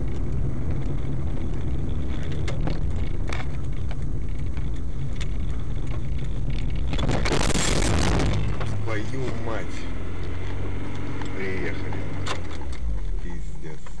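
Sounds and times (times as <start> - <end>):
car driving rumble: 0.0 - 14.0
loud harsh noise: 6.9 - 9.0.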